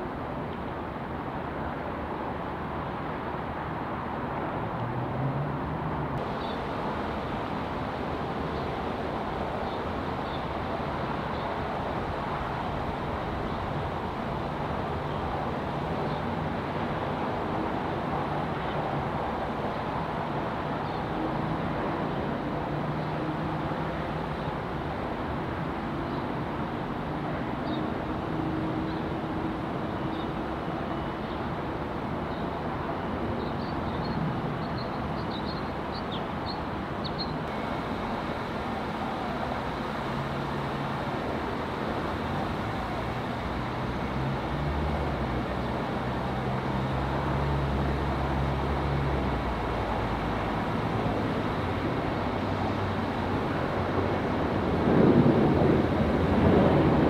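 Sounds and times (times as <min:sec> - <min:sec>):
traffic rumble: 0:00.0 - 0:57.0
low engine hum: 0:04.2 - 0:25.2, 0:37.3 - 0:57.0.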